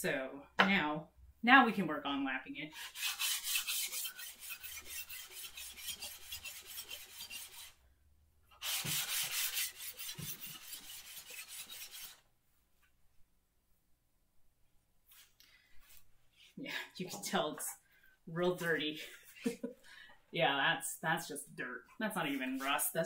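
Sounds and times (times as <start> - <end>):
plane sole rasping on sandpaper: 2.8 - 7.8, 8.5 - 12.2.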